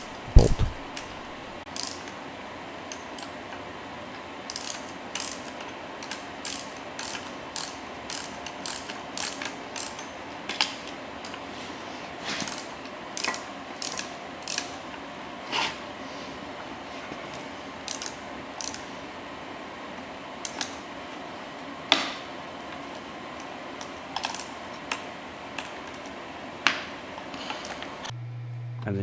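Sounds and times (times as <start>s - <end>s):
hand ratchet clicking: 1.7s - 2.1s, 4.5s - 10.1s, 12.4s - 14.7s, 17.9s - 18.8s.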